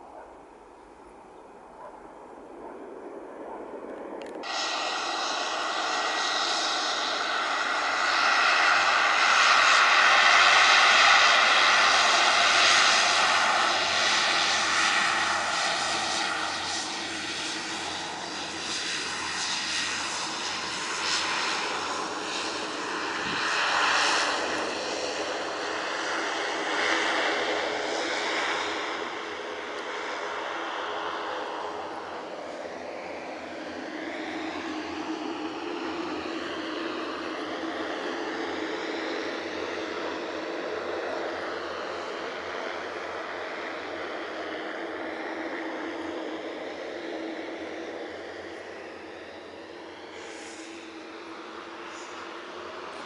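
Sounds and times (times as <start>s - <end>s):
turboprop engines whining: 0.0s - 53.0s.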